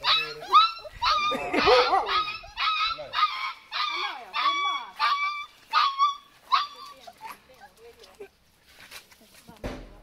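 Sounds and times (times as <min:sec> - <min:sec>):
puppies whimpering yelps: 0:00.0 - 0:07.8.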